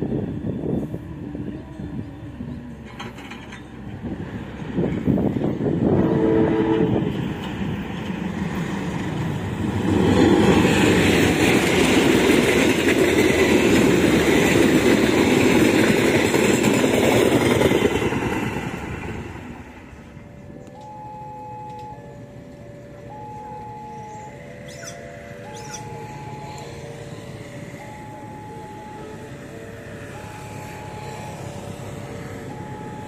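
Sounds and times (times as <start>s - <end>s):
train wheel and rail noise: 0.0s - 33.0s
distant locomotive horn: 5.8s - 7.3s
train horn blast: 5.9s - 7.1s.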